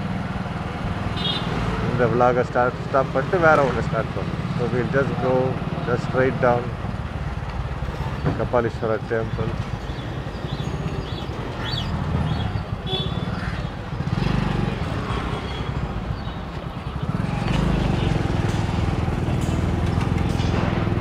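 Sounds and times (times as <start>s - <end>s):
motorcycle engine running: 9.6s - 21.0s.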